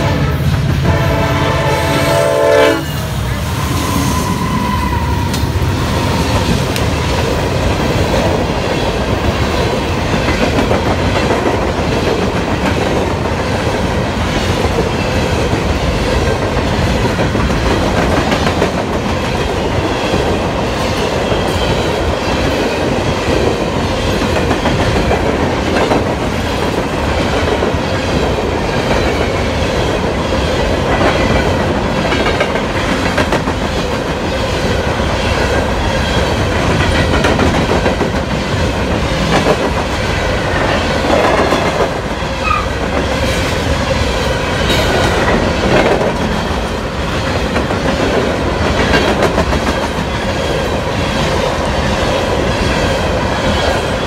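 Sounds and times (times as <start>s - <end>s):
train wheels rumbling on rail: 0.0s - 54.0s
high wheel squeal: 2.8s - 6.4s.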